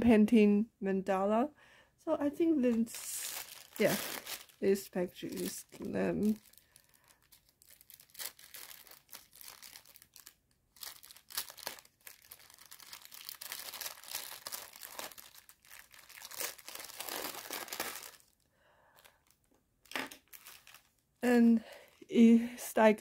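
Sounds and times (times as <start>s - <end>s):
plastic mailer bag crinkling: 2.6s - 21.0s.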